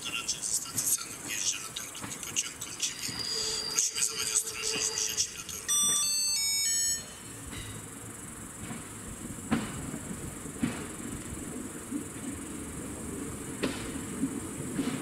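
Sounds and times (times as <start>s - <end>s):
wheels clicking over rail joints: 0.0s - 3.2s, 8.6s - 15.0s
railbus engine rumble: 0.0s - 15.0s
steady high hiss: 0.0s - 15.0s.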